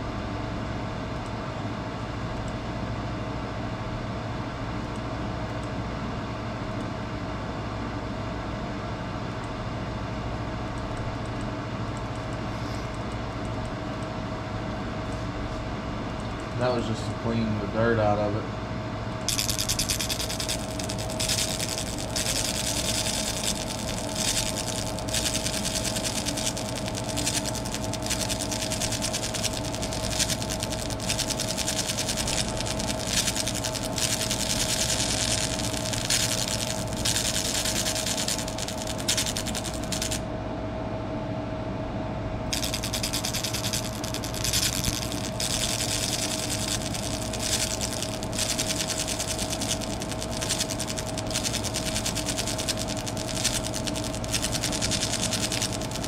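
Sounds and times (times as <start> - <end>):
laser engraver machine hum: 19.2 - 40.3, 42.5 - 56.0
fast crackling hiss of burning: 19.3 - 40.2, 42.5 - 56.0.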